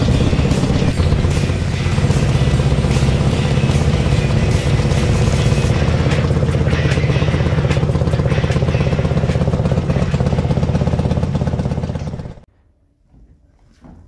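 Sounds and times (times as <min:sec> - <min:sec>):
motorcycle engine idling: 0:00.0 - 0:12.5.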